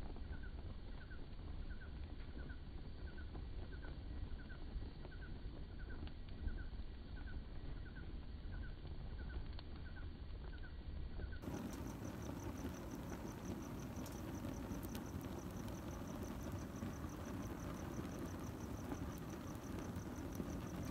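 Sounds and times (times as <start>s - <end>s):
crickets chirping: 11.4s - 20.9s
faint clicks: 11.4s - 20.9s
low steady rush: 11.4s - 20.9s.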